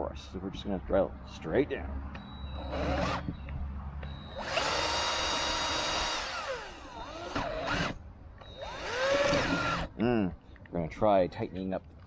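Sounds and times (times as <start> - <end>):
cordless drill whining: 2.5 - 3.4, 4.2 - 9.9.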